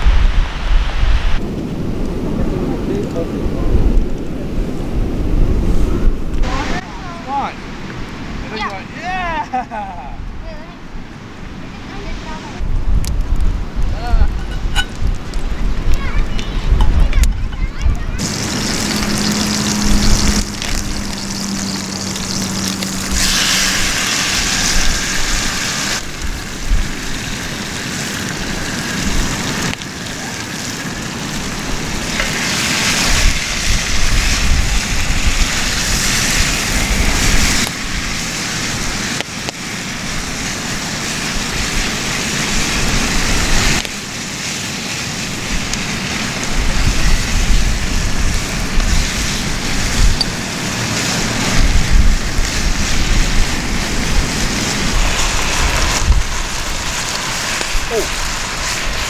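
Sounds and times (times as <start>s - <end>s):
wind rumbling on microphone: 0.0s - 8.4s, 10.1s - 59.0s
food sizzling in a pot: 14.0s - 59.0s.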